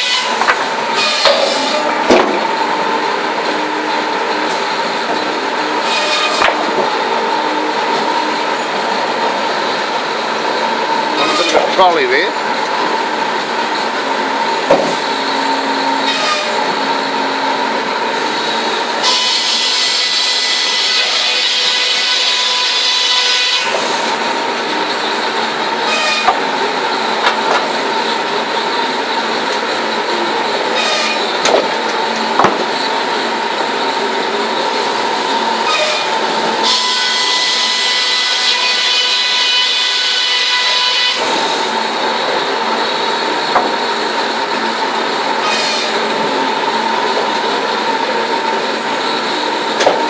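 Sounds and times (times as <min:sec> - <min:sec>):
sawmill machinery running: 0:00.0 - 0:50.0
sharp wooden knocks: 0:32.4 - 0:32.6.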